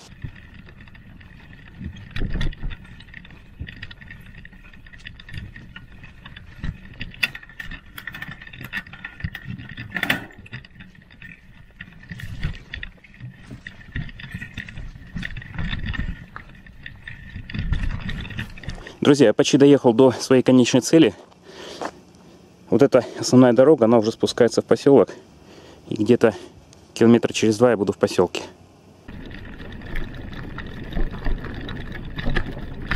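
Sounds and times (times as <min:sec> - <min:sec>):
wind on microphone: 0:00.0 - 0:19.0, 0:29.1 - 0:32.9
bike rattling over bumps: 0:00.0 - 0:20.8, 0:29.1 - 0:32.9
bike tyre noise on dirt: 0:00.0 - 0:22.4, 0:29.0 - 0:32.9.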